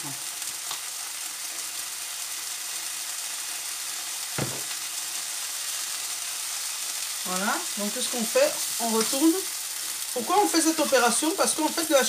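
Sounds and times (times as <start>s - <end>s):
tomato slices sizzling in a pan: 0.0s - 12.0s
knock: 4.4s - 4.8s.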